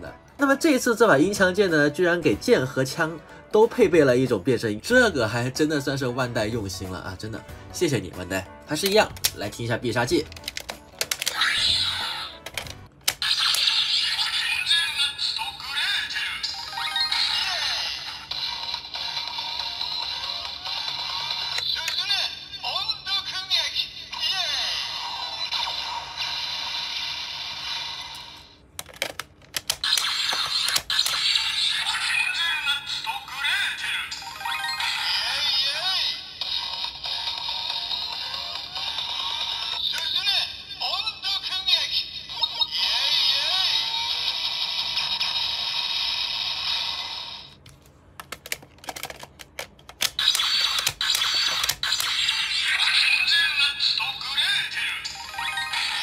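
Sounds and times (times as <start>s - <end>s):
plastic toy clicks: 10.2s - 11.5s, 28.8s - 31.4s, 48.2s - 52.4s
electronic toy sound effect: 11.2s - 22.7s, 23.5s - 28.6s, 29.7s - 47.6s, 50.0s - 56.0s.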